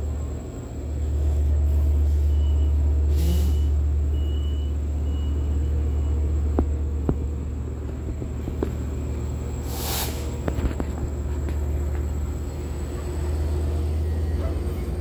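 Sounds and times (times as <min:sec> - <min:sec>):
train low rumble: 0:00.0 - 0:15.0
air hiss: 0:03.1 - 0:03.7, 0:09.6 - 0:10.4.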